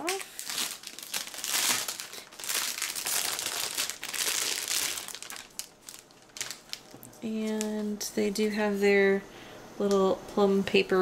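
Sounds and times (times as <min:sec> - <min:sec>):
cellophane wrap crinkling: 0:00.0 - 0:08.1.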